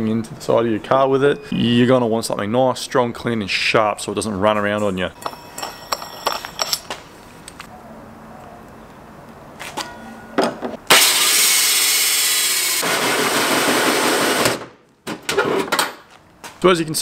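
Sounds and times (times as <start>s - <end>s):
drill cutting sheet metal: 10.9s - 14.6s.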